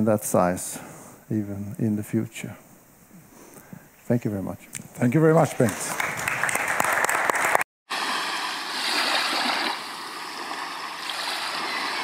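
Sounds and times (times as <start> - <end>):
audience applause: 5.6 - 7.6
water rushing: 7.9 - 12.0.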